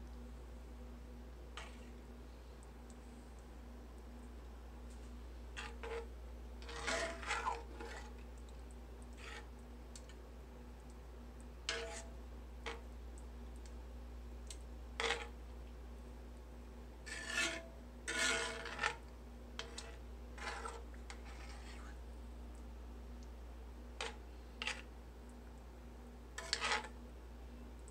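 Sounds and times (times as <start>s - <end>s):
steady low hum: 0.0s - 27.9s
metal spoon scraping in skillet: 1.6s - 2.0s, 5.6s - 8.2s, 9.1s - 9.5s, 11.7s - 12.1s, 15.0s - 15.4s, 17.1s - 19.0s, 19.6s - 22.0s, 24.0s - 24.9s, 26.4s - 27.0s.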